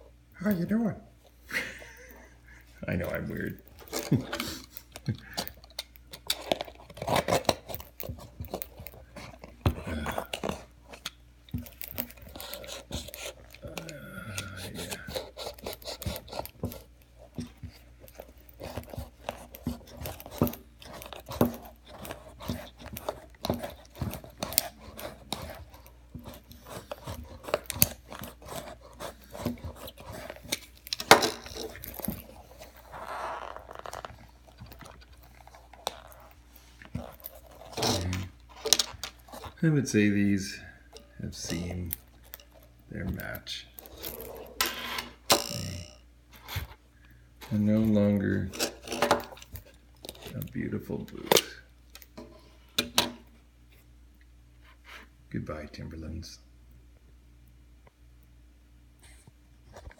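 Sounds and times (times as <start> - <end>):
utility knife cutting leather: 6.9 - 10.7, 11.9 - 17.8, 18.5 - 34.1.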